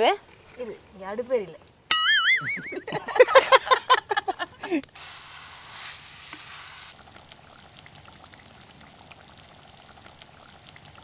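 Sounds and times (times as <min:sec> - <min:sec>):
faint hiss with crackles: 0:03.8 - 0:11.0
meat sizzling in a pot: 0:04.8 - 0:11.0.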